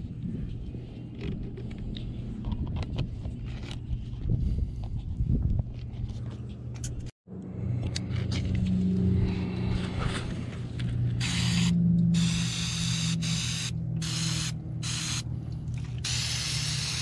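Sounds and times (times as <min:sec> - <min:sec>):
low hum: 0:00.0 - 0:16.1
aerosol spray hissing: 0:11.2 - 0:15.2, 0:16.1 - 0:17.0.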